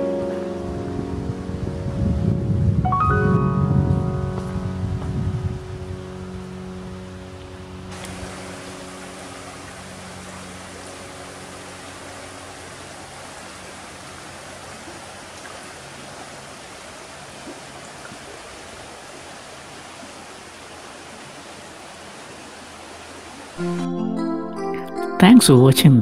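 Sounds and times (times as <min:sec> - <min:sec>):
brook flowing over stones: 0:07.0 - 0:23.6.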